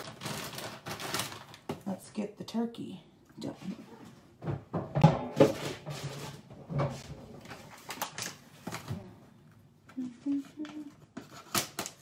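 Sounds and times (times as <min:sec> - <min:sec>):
kitchen items clattering on counter: 0:04.4 - 0:07.7.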